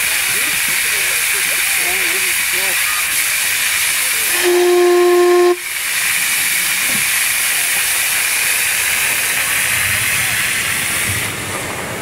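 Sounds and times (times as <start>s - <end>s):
steam hissing: 0.0s - 12.0s
steam locomotive whistle: 4.2s - 5.8s.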